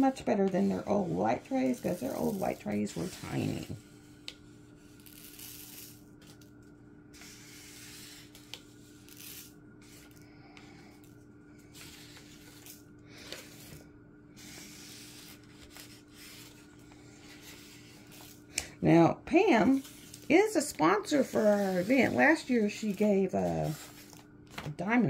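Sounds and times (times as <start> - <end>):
paper card scraping on table: 7.2 - 10.2, 14.4 - 18.4, 19.6 - 24.6.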